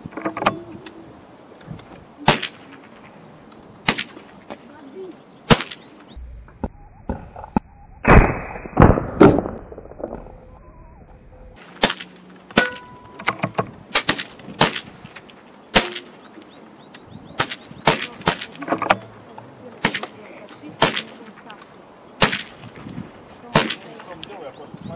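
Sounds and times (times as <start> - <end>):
air rifle shots: 2.2 - 3.2, 3.8 - 4.5, 5.5 - 5.9, 11.6 - 16.2, 17.4 - 19.0, 19.8 - 21.4, 22.2 - 22.8, 23.5 - 24.0
loud thumps: 6.4 - 10.4.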